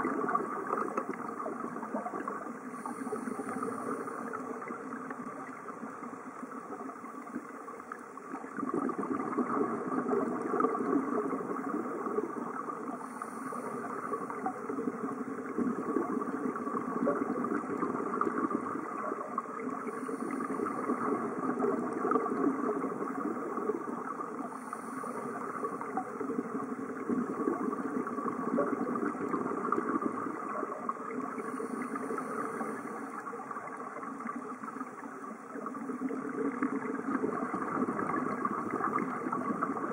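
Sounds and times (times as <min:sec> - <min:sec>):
exhaled bubbles burbling underwater: 0:00.0 - 0:39.9
regulator inhale hiss: 0:02.6 - 0:04.4, 0:12.9 - 0:14.4, 0:19.8 - 0:21.0, 0:24.5 - 0:25.9, 0:31.4 - 0:33.2.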